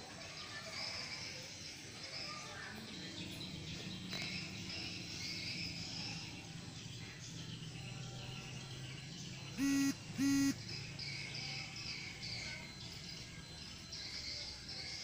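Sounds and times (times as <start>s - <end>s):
vehicle horn honks: 9.6s - 10.6s.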